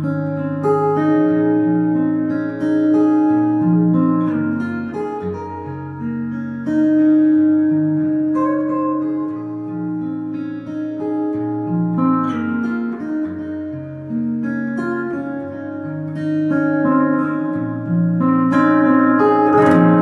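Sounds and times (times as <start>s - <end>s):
fingerstyle acoustic guitar: 0.0s - 20.0s.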